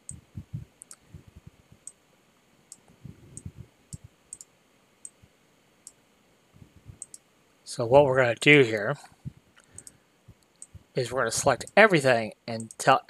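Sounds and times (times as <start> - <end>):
computer mouse clicking: 0.8 - 1.0, 2.7 - 5.2, 7.0 - 7.2, 9.6 - 10.8, 12.6 - 12.8.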